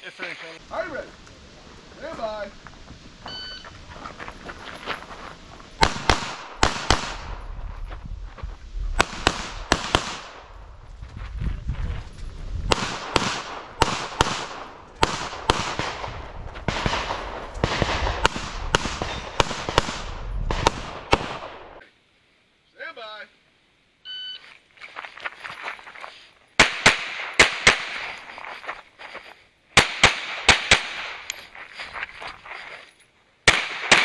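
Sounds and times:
pistol shots: 5.8s - 7.4s, 9.0s - 10.5s, 12.7s - 21.8s, 26.6s - 28.0s, 29.8s - 31.3s, 33.5s - 34.0s.

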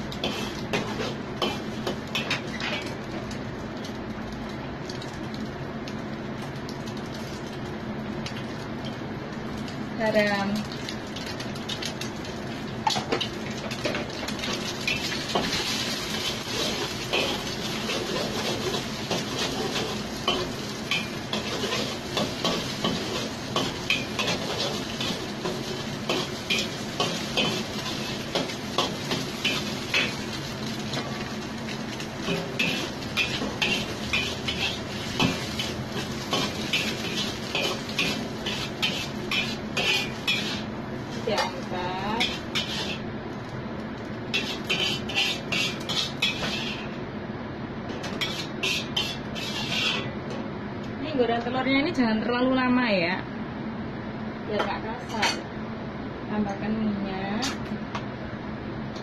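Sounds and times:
eggs sizzling in hot oil: 0.0s - 47.0s, 48.0s - 50.1s
metal spatula scraping a pan: 0.2s - 2.9s, 32.2s - 40.7s, 41.3s - 43.0s, 44.3s - 47.0s, 48.0s - 50.1s.

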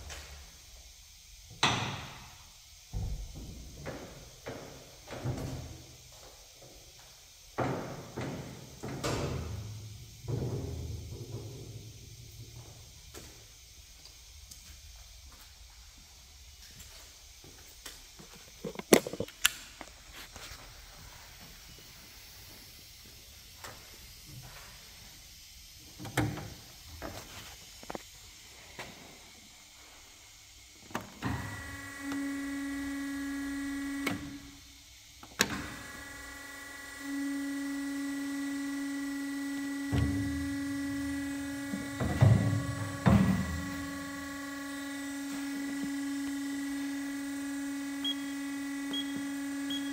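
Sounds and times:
bandsaw motor whining hum: 30.9s - 49.9s.

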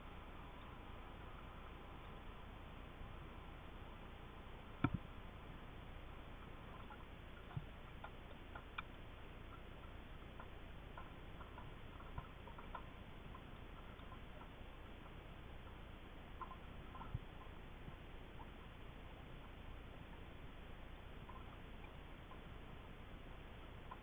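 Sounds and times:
small clicks and ticks: 4.7s - 5.2s, 6.0s - 24.0s.

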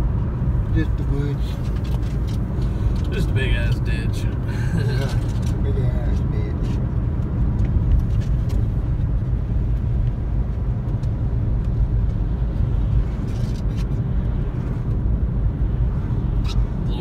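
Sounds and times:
car rumbling on wet road: 0.0s - 17.0s.

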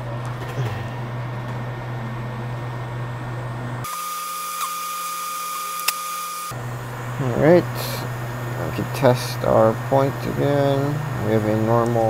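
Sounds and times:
electric fan hum: 0.0s - 12.0s
high whine: 0.0s - 12.0s
click: 5.8s - 6.0s.

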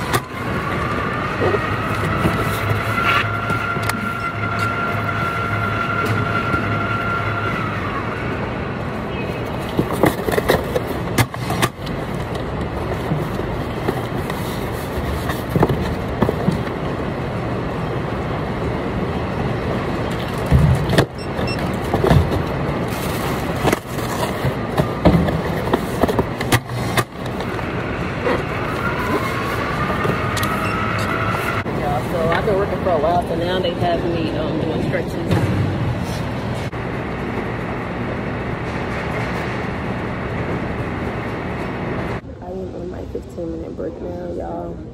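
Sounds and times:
machinery rumble: 0.0s - 44.9s
knocks and rustles of packages: 20.4s - 27.7s.

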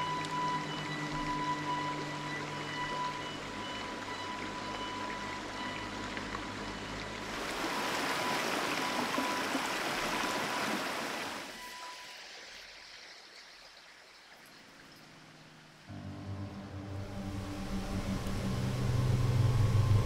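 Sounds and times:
rocky stream rushing: 7.2s - 11.6s.

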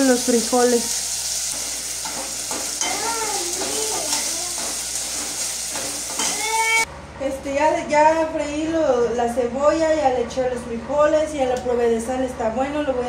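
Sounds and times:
onion sizzling in oil: 0.0s - 6.9s
spoon stirring against pot: 1.6s - 6.6s.

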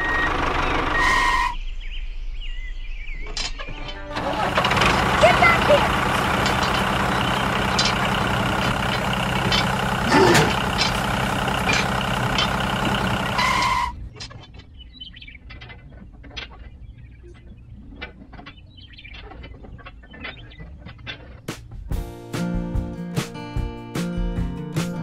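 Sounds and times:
model tractor engine running: 4.1s - 13.9s.

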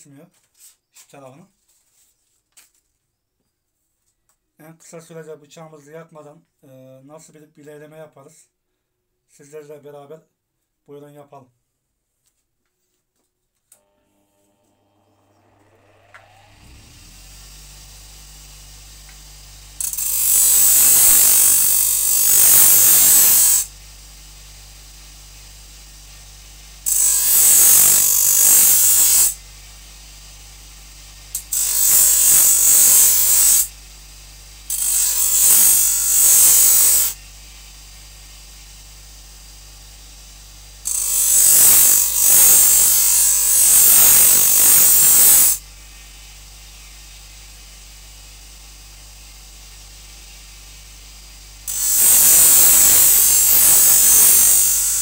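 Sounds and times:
bench grinder humming: 13.8s - 55.0s
blade grinding hiss: 14.5s - 55.0s.

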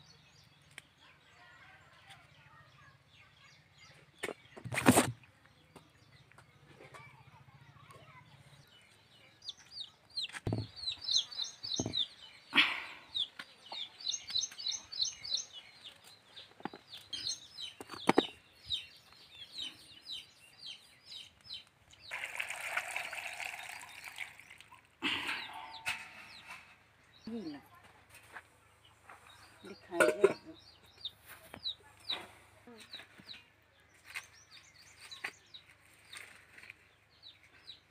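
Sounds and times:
chickens chirping and clucking: 7.9s - 22.2s, 24.6s - 37.9s.

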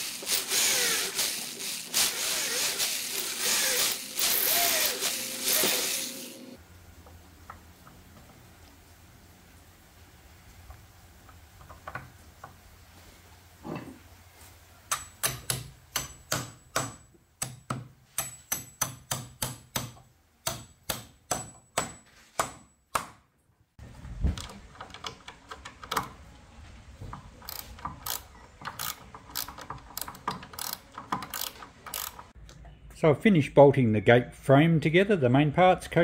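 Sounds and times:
ratchet spanner clicking: 0.0s - 6.2s, 27.4s - 32.3s
hammer striking bolts: 14.9s - 23.2s.

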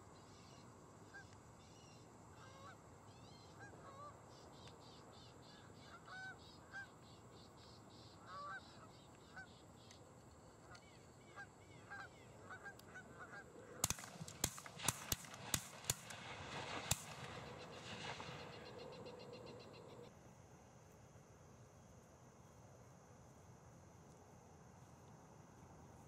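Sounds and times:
geese honking: 8.2s - 9.6s, 10.7s - 14.2s
shotgun shots: 13.8s - 18.7s.

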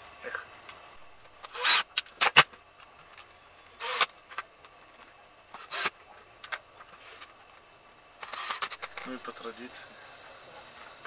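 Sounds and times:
cordless drill running in bursts: 1.4s - 2.4s, 3.8s - 4.1s, 5.5s - 5.9s, 8.2s - 8.9s.

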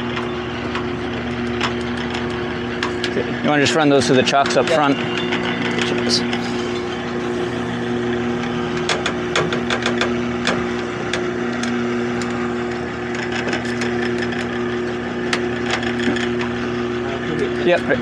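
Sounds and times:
outboard motors idling: 0.0s - 18.0s
sharp knocks and clicks: 8.4s - 12.3s.

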